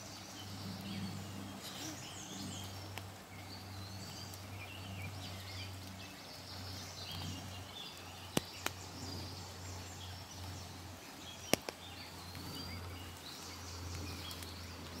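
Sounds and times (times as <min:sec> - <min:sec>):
birds chirping and singing: 0:00.0 - 0:15.0
steady low rumble: 0:00.0 - 0:15.0
sharp clicks: 0:11.4 - 0:11.8.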